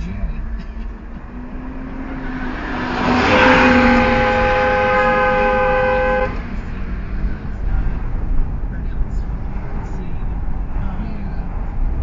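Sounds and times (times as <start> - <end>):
car and traffic rumble: 0.0 - 12.0
car horn blast: 2.7 - 6.5.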